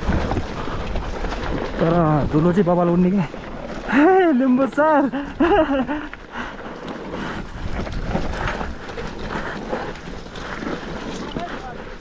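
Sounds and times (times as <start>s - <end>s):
bike rattling over rocks: 0.0s - 12.0s
wind on microphone: 7.1s - 11.0s.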